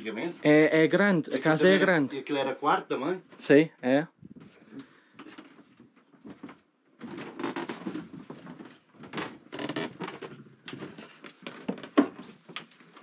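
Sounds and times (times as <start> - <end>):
rustling: 4.4 - 13.0.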